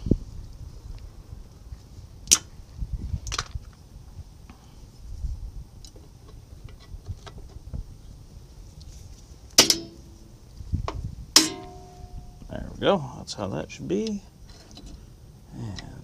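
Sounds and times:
ringing metal clank: 9.6s - 10.1s, 11.4s - 12.4s.

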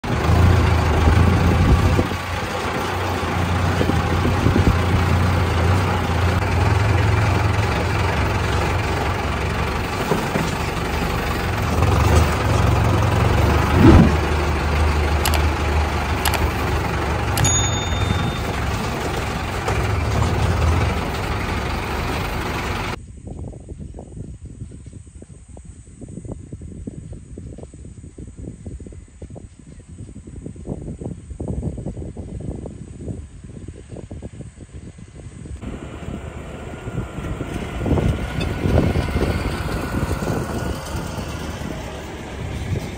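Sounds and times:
tractor diesel engine running: 0.0s - 23.0s, 35.6s - 42.9s.

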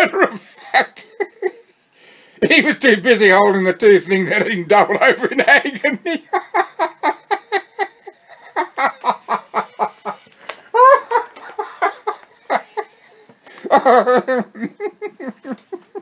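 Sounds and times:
man laughing: 0.1s - 1.7s, 4.3s - 12.9s, 13.6s - 16.0s.

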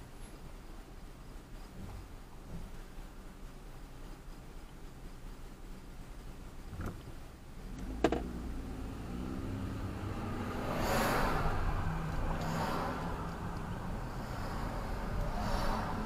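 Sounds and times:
car engine and road noise passing: 5.5s - 16.0s.

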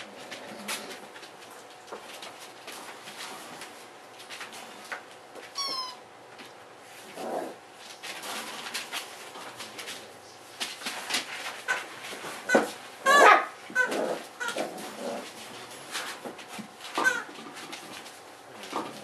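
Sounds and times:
puppy whining: 5.5s - 6.1s, 12.5s - 14.8s, 17.0s - 17.3s.

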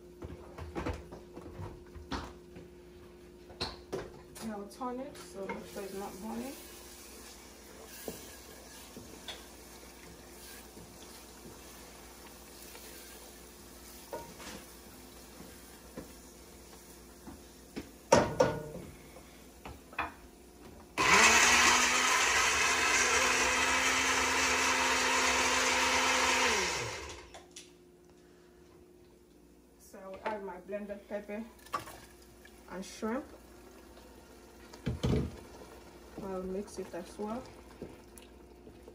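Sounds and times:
electric blender running: 21.0s - 27.4s.

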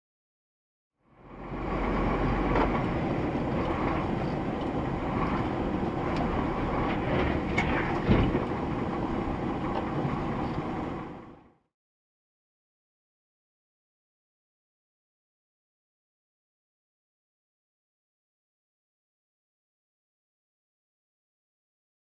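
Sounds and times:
car cabin driving rumble: 1.3s - 11.4s
heavy thump: 7.2s - 8.5s.

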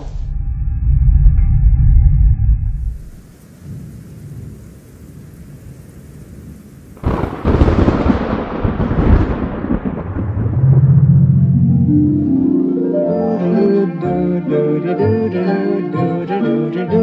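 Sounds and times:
rain hiss: 2.7s - 17.0s
loud thunderclap: 6.5s - 11.7s.

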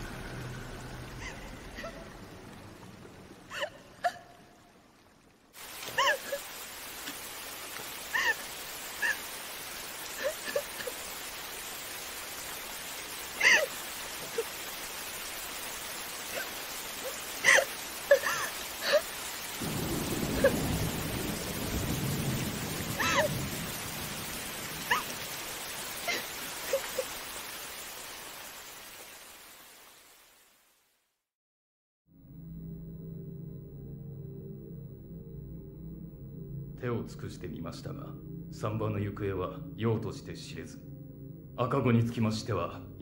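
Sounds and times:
low rumble: 0.0s - 3.5s, 32.2s - 43.0s
steady rain falling: 0.0s - 31.2s, 36.1s - 43.0s.

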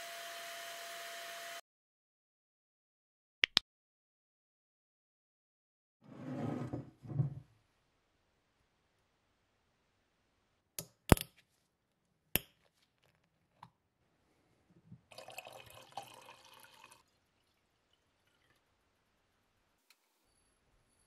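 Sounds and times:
liquid pouring into glass jar: 15.1s - 18.8s.

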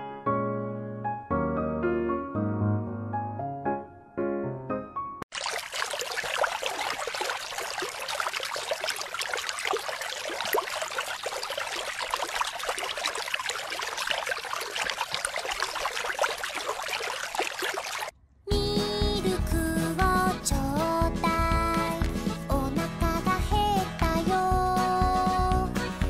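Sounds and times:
water splashing into a pool: 5.3s - 18.1s.

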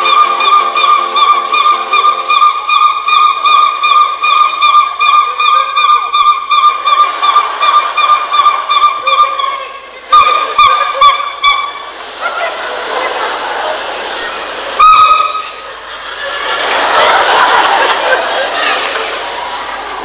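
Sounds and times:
reedy wind pipe note: 0.0s - 12.0s, 14.8s - 15.6s
wind pipe honks: 0.0s - 12.0s, 14.8s - 15.6s.

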